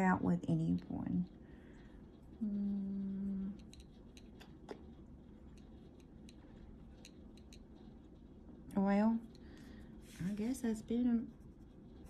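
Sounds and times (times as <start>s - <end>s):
pencil scratching on paper: 3.6s - 9.3s, 10.0s - 12.0s.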